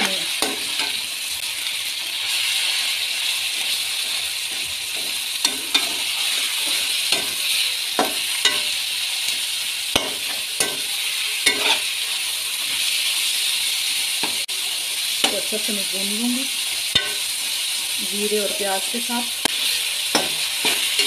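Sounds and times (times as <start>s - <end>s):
meat and onions sizzling: 0.0s - 21.0s
spoon scraping and knocking pot: 11.5s - 11.8s.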